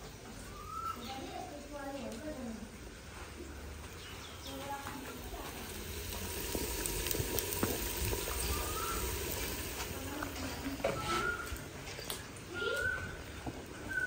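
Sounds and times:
wood fire crackling: 0:03.3 - 0:14.0
onions sizzling in oil: 0:03.9 - 0:12.9.

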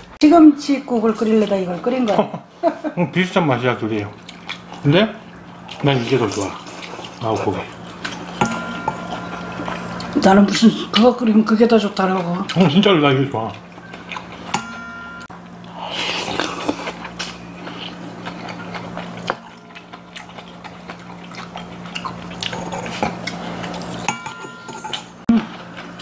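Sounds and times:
chopsticks clinking on steel bowls: 0:05.7 - 0:11.2, 0:13.8 - 0:15.3, 0:21.6 - 0:25.2
metal bowl ringing: 0:08.2 - 0:11.2, 0:14.5 - 0:15.3, 0:24.0 - 0:25.2.

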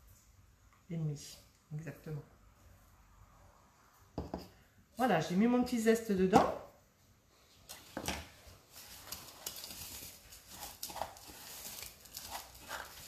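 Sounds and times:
spoon scraping glass bowl: 0:10.5 - 0:13.0.

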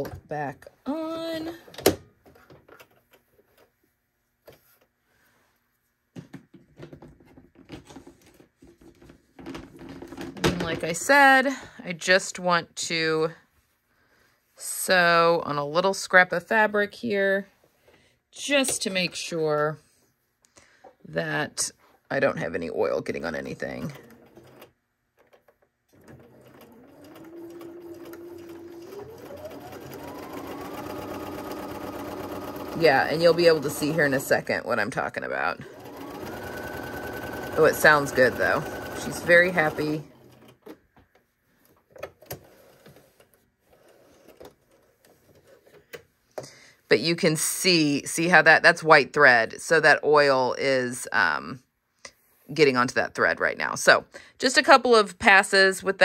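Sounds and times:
sewing machine motor whine: 0:26.0 - 0:34.3, 0:35.6 - 0:40.3.

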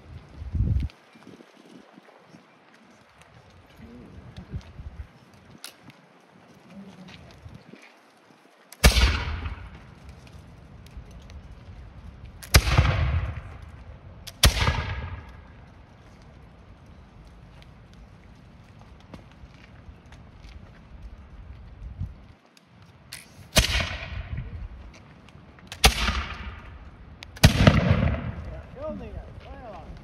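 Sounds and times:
musket shots: 0:08.8 - 0:09.8, 0:12.4 - 0:13.6, 0:14.3 - 0:15.5, 0:23.5 - 0:24.3, 0:25.7 - 0:26.7, 0:27.4 - 0:28.6.

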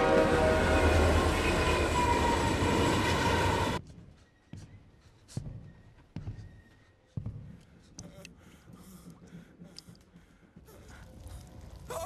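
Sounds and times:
train running on rails: 0:00.0 - 0:05.4.

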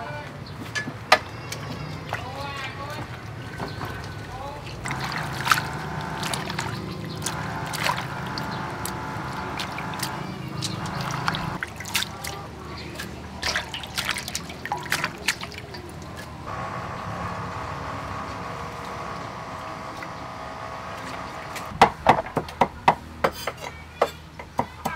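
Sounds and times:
leaves swishing in water: 0:02.0 - 0:16.5
water trickling and dripping: 0:02.0 - 0:16.5.

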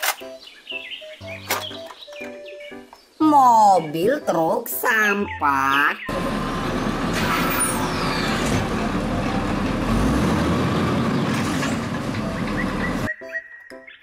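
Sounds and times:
garbage truck running: 0:06.1 - 0:13.1
truck arm lifting trash cart: 0:06.1 - 0:13.1.

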